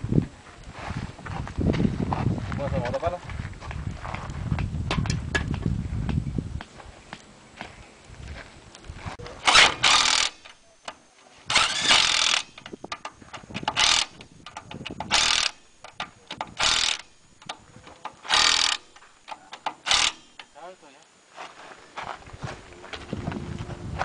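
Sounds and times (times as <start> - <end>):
impact wrench hammering: 9.5 - 17.6, 18.2 - 20.6.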